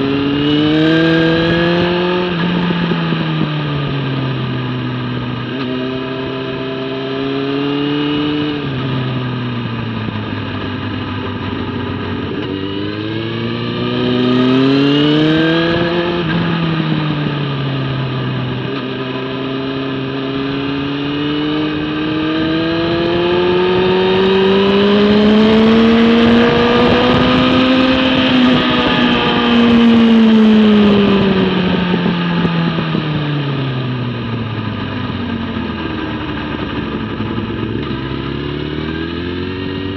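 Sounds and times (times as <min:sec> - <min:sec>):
motorcycle engine revving: 0:00.0 - 0:39.9
wind rushing over microphone: 0:20.6 - 0:35.2.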